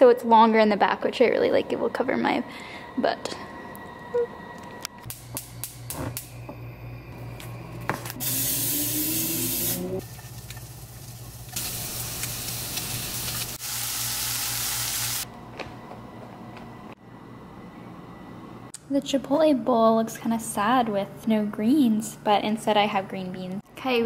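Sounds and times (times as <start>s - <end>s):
steady low hum: 0.3s - 8.8s
chicken sizzling in a pan: 8.2s - 15.2s.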